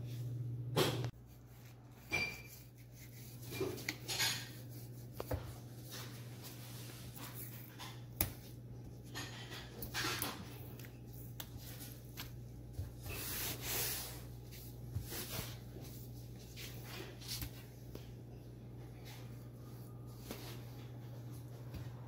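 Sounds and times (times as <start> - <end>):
steady low hum: 0.0 - 9.7
soft rubbing and wiping: 1.2 - 7.8, 10.8 - 18.2.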